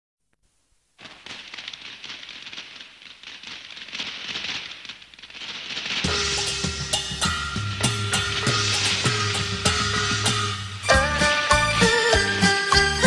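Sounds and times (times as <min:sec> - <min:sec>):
firecrackers popping: 0:00.4 - 0:13.0
music: 0:06.1 - 0:13.0.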